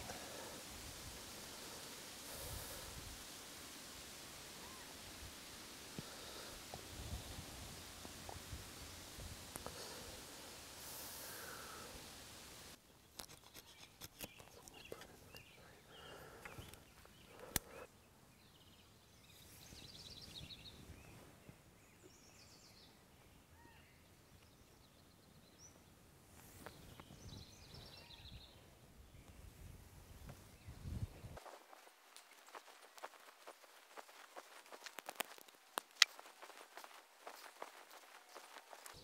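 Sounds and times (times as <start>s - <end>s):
birds chirping: 12.8s - 31.4s, 32.2s - 39.0s
cord rustling and clicking: 32.2s - 39.0s.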